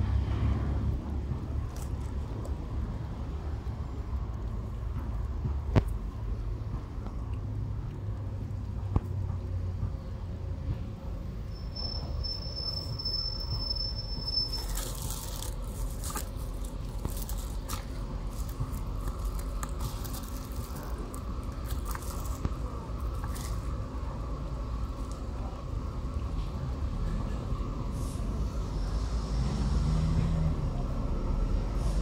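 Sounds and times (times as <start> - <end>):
high whistle: 11.5 - 15.0
cats chewing and crunching food: 14.6 - 24.3.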